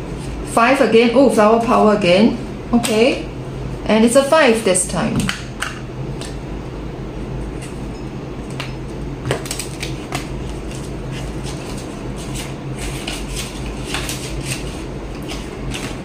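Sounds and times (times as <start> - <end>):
steady low hum: 0.0 - 16.0
paper banknotes rustling: 9.5 - 16.0.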